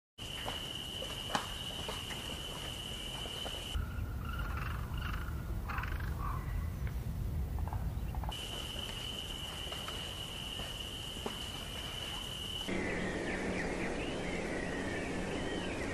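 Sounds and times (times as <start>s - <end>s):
insect drone: 0.2s - 6.5s, 7.6s - 15.9s
low even rumble: 12.7s - 15.9s.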